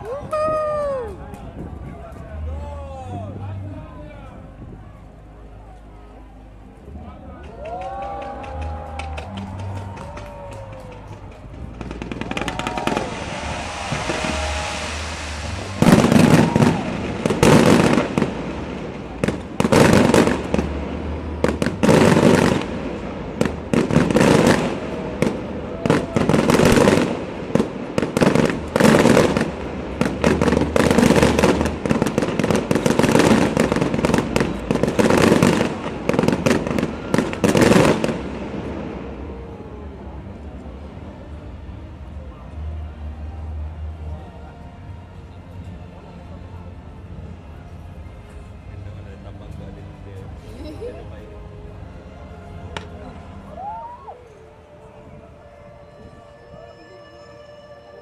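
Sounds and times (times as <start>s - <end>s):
fireworks bangs and crackles: 7.4s - 42.1s
fireworks rushing hiss: 11.0s - 39.5s.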